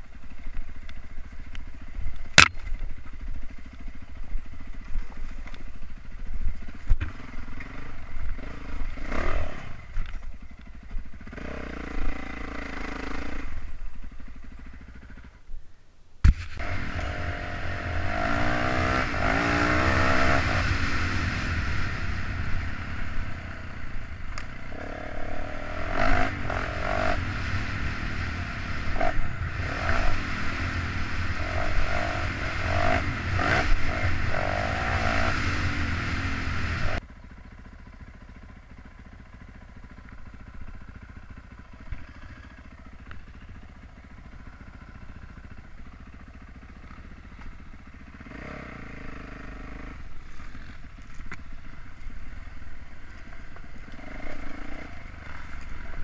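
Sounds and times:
dirt bike engine revving: 0:07.0 - 0:10.0, 0:11.1 - 0:13.8, 0:16.4 - 0:37.0, 0:40.4 - 0:51.2, 0:51.8 - 0:56.0.

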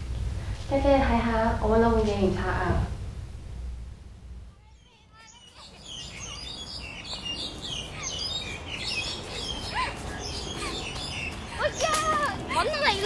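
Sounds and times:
low background rumble: 0:00.0 - 0:05.5
small birds chirping: 0:04.6 - 0:13.0.

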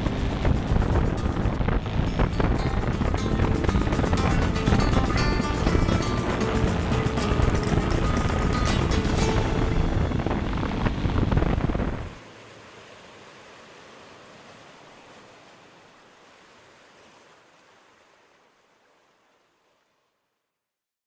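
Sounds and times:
wind noise on microphone: 0:00.0 - 0:12.2.

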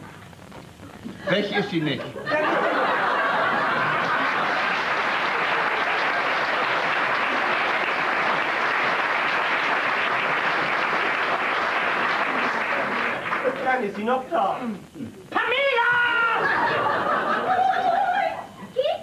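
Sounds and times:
audience applauding: 0:02.6 - 0:14.5.

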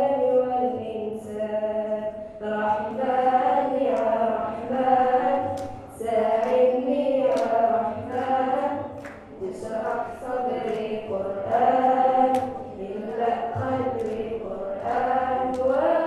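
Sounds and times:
young voices singing: 0:00.0 - 0:16.0.

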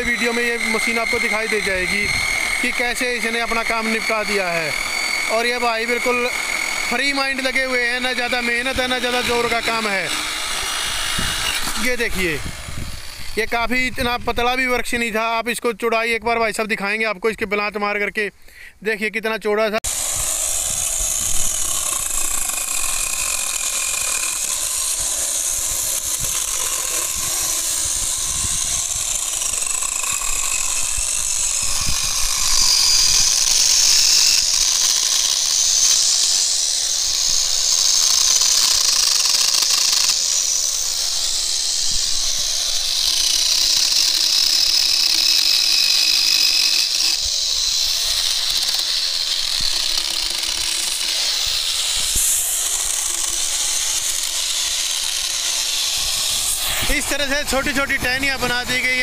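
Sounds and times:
electric chainsaw motor whine: 0:00.0 - 0:14.6, 0:19.8 - 0:59.0
chain cutting wood hiss: 0:20.2 - 0:57.4.

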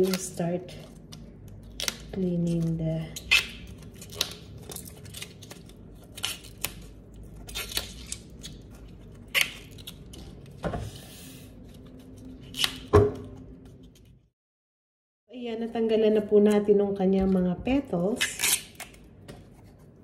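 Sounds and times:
artichoke leaves snapping: 0:00.0 - 0:10.3.

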